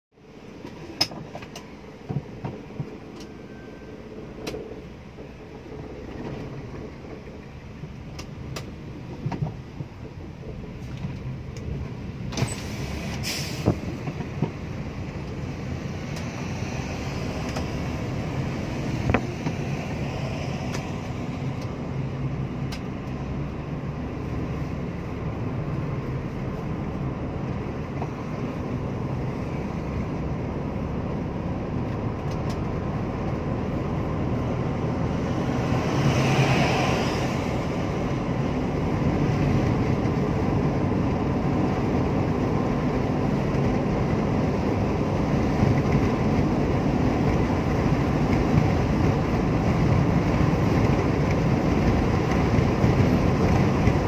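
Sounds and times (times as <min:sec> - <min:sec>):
car engine and tyre noise: 0:00.1 - 0:54.0
loud rush of noise: 0:32.8 - 0:54.0.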